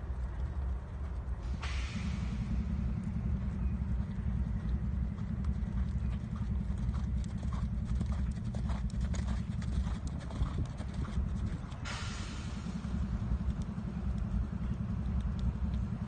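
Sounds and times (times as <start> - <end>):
low rumble: 0.0 - 16.0
horse hoofbeats on sand: 3.1 - 12.0.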